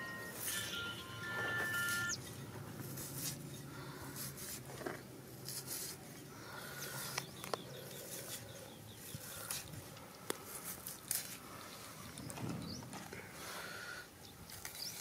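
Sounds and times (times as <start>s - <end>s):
bird chirping: 0.0s - 2.5s
shallots being peeled: 2.8s - 6.1s, 9.1s - 11.4s, 14.4s - 15.0s.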